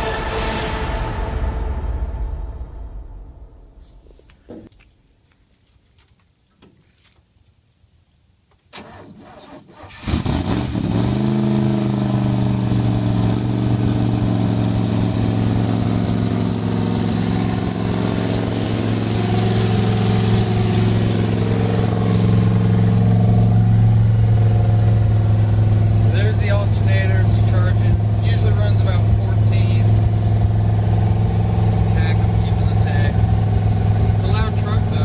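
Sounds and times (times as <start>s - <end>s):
engine starter cranking: 8.7s - 10.8s
truck engine revving and idling: 8.8s - 35.0s.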